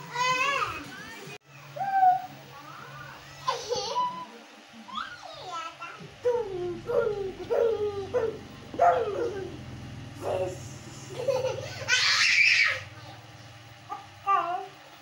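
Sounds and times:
children laughing and calling out: 10.2s - 13.3s
child shrieking: 11.9s - 12.8s.

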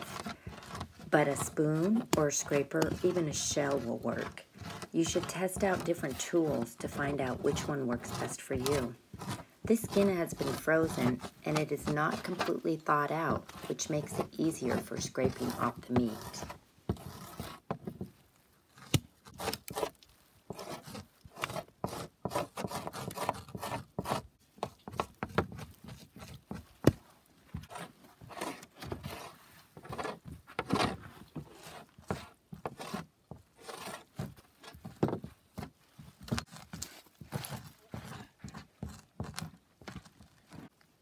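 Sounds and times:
knife scraping fish skin: 0.0s - 18.0s, 18.7s - 26.9s.

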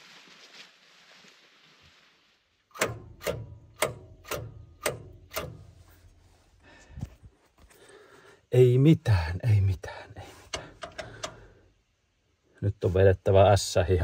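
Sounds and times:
diesel engine cranking: 2.7s - 6.2s, 10.4s - 11.6s.

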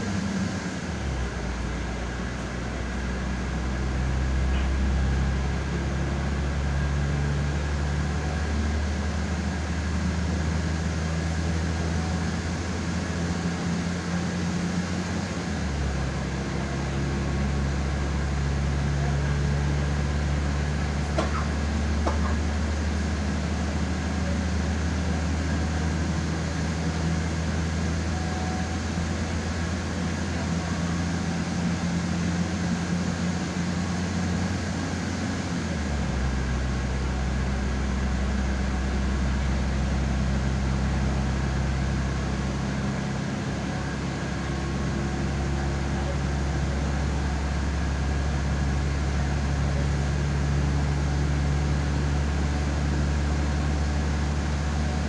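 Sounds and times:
train engine and running gear hum: 0.0s - 55.0s.

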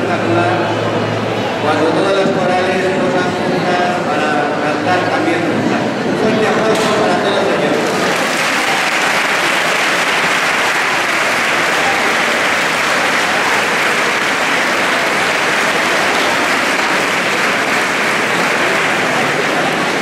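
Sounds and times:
large audience applauding: 7.7s - 20.0s.

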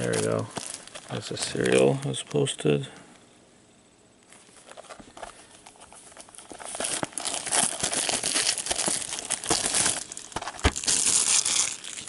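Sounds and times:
packaging tearing: 0.0s - 2.2s, 5.6s - 12.0s
packaging crinkling: 0.0s - 2.5s, 4.2s - 12.0s.

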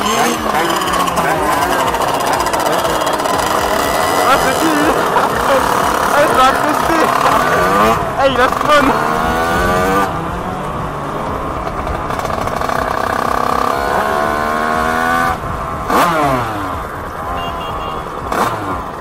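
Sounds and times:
motorcycle engines revving: 0.0s - 19.0s.

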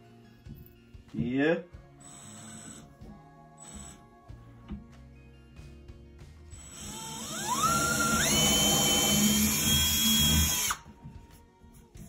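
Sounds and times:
cordless drill motor whine: 6.6s - 10.8s.

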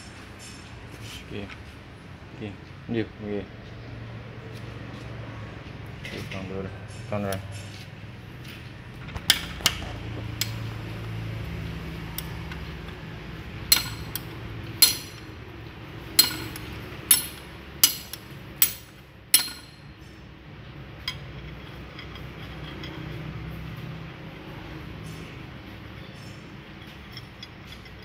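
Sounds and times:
low steady hum: 1.8s - 28.0s
metal tool striking steel housing: 13.7s - 15.4s, 16.1s - 20.0s.

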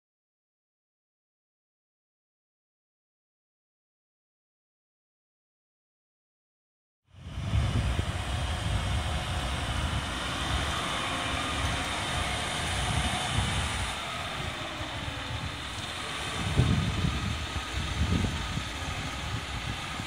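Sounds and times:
fire truck diesel engine passing: 7.1s - 20.0s.

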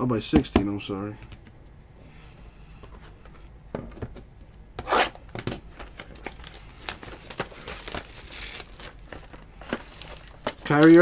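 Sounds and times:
wrapper crinkling and rustling: 5.7s - 11.0s
wrapper tearing: 5.9s - 11.0s.

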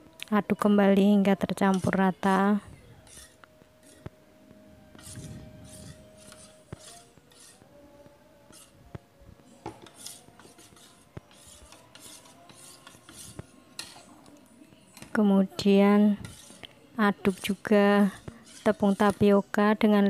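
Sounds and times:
spoon scraping batter bowl: 1.2s - 4.2s, 4.9s - 7.7s, 8.5s - 8.8s, 9.5s - 14.3s, 15.0s - 19.6s.

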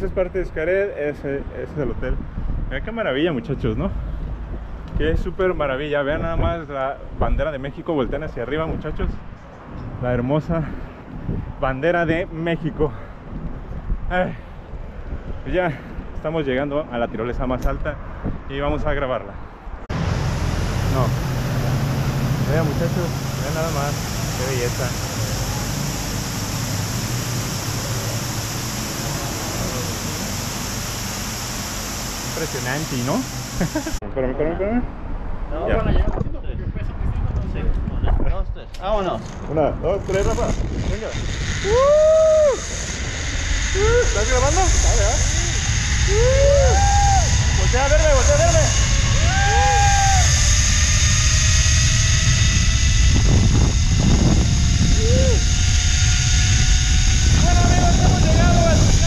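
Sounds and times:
steady rushing noise: 0.0s - 34.0s, 35.0s - 59.0s
rising-and-falling vocal call: 19.9s - 32.3s, 41.6s - 43.1s, 45.5s - 53.3s, 54.2s - 57.5s
pulleys whining on cable: 19.9s - 34.0s, 39.2s - 59.0s.

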